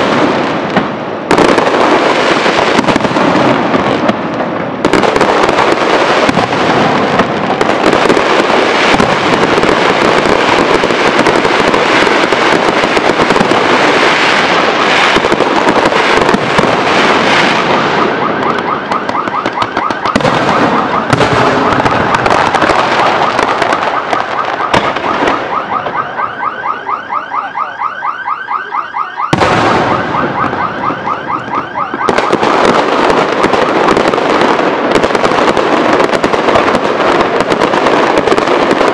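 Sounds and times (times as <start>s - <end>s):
fireworks bursting and crackling: 0.0s - 26.8s, 29.3s - 38.9s.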